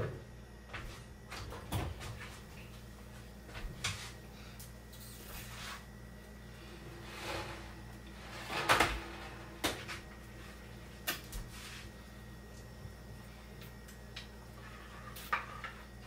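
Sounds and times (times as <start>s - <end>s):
kitchen knocks and clunks: 1.3s - 2.4s.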